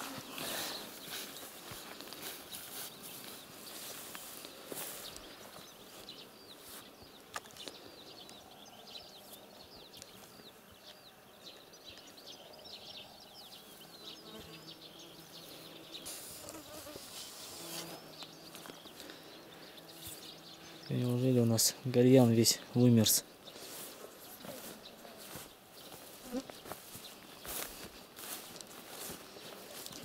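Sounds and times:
birds chirping: 0:00.0 - 0:30.0
insect buzzing: 0:13.8 - 0:20.8.

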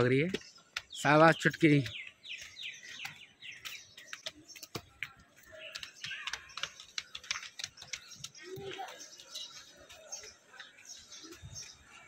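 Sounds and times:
footsteps on stone steps: 0:00.0 - 0:12.0
small birds chirping: 0:00.0 - 0:12.0.

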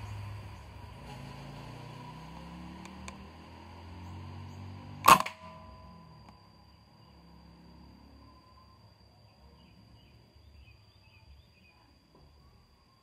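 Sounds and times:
low steady hum: 0:00.0 - 0:13.0
air rifle shot: 0:05.0 - 0:05.7.

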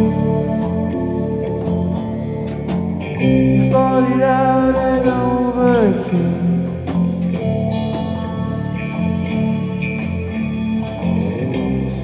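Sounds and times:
drum and cymbal hits: 0:00.0 - 0:11.8
rock band playing: 0:00.0 - 0:12.0.

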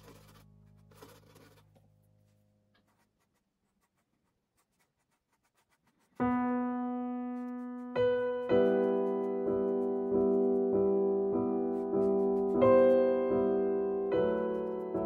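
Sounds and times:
brush scratching: 0:00.0 - 0:10.9, 0:11.6 - 0:13.0, 0:14.2 - 0:15.0
piano chords: 0:06.2 - 0:15.0.

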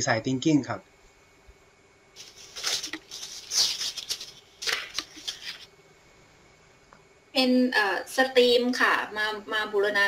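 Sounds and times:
rustling and clattering: 0:02.2 - 0:05.7.

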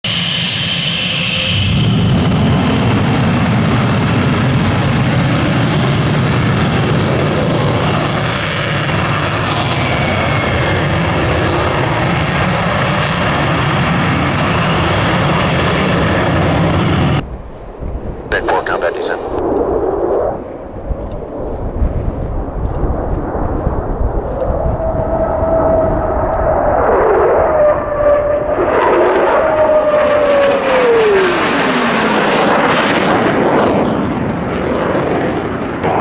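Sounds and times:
jet engines rumbling with hiss: 0:00.1 - 0:28.5.

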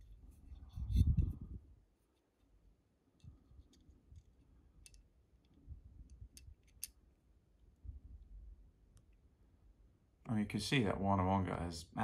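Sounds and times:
metal parts clicking and tapping: 0:03.2 - 0:07.0.

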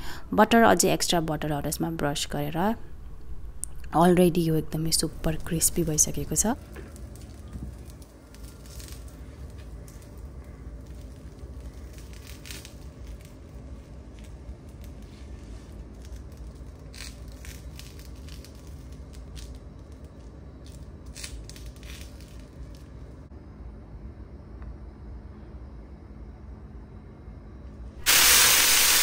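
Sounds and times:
low background hum: 0:00.0 - 0:28.6
crackles: 0:04.9 - 0:23.3, 0:28.0 - 0:29.0.

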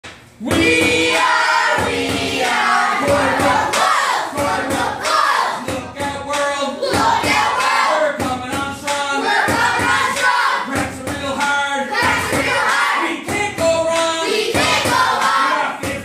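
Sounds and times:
sharp percussive hits: 0:00.0 - 0:16.0
children singing: 0:00.4 - 0:05.8, 0:06.6 - 0:08.2, 0:09.1 - 0:10.8, 0:11.9 - 0:13.2, 0:14.2 - 0:15.8.

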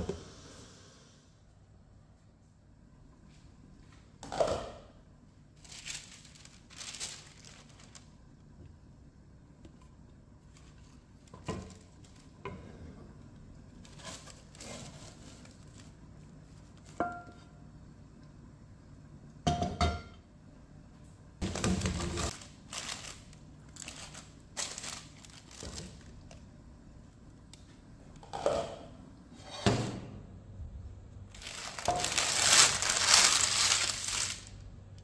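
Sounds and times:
baking paper crinkling: 0:05.5 - 0:08.4, 0:10.4 - 0:12.4, 0:13.6 - 0:17.0, 0:21.4 - 0:26.5, 0:31.3 - 0:34.8.

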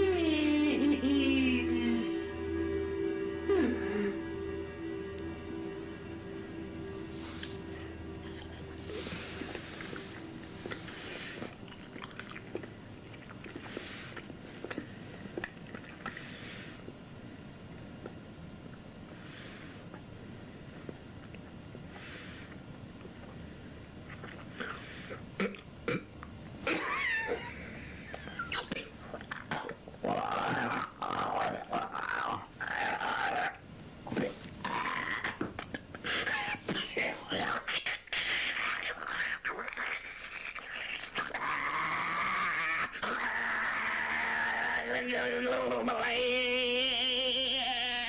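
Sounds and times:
person chewing food noisily: 0:08.1 - 0:17.1, 0:20.8 - 0:26.6
growling grunting vocal sounds: 0:29.2 - 0:46.1.

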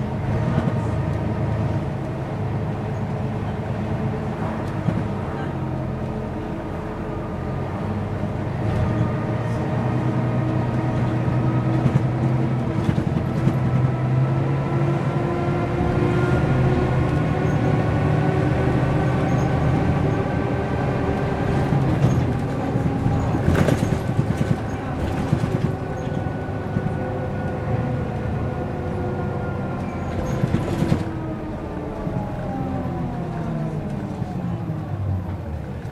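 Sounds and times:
bus diesel engine: 0:00.0 - 0:35.9
rattles and clicks: 0:11.7 - 0:13.8, 0:21.5 - 0:27.0, 0:29.8 - 0:31.2.

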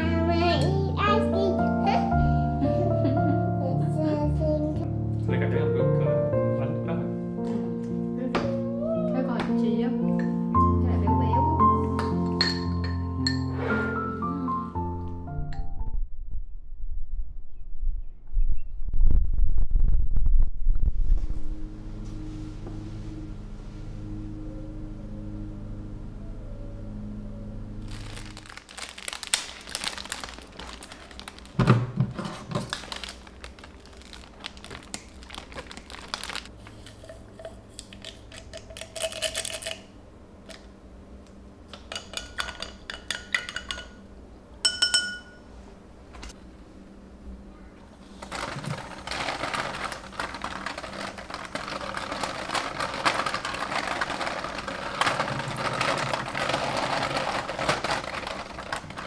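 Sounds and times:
glass clinks: 0:12.0 - 0:13.5, 0:44.6 - 0:45.4.

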